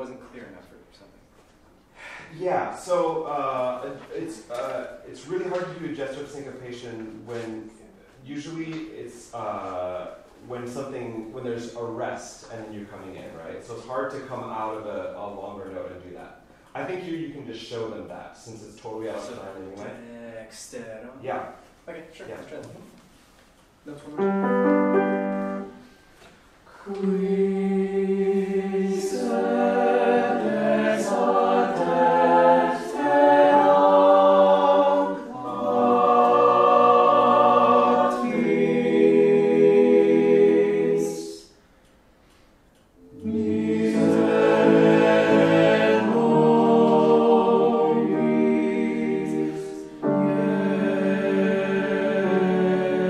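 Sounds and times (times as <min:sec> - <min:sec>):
choir singing: 0:24.2 - 0:25.8, 0:26.7 - 0:41.5, 0:43.0 - 0:53.0.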